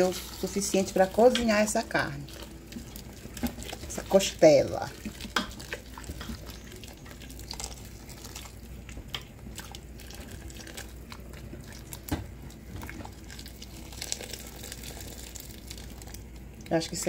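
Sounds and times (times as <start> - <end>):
spatula stirring and tapping pot: 0.0 - 7.3
water pouring into pot: 0.0 - 8.8, 9.6 - 12.1, 12.9 - 16.7.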